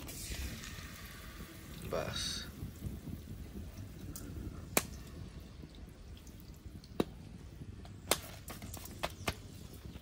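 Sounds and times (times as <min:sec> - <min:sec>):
low steady rumble: 0:00.0 - 0:08.0
hot oil popping: 0:00.0 - 0:10.0.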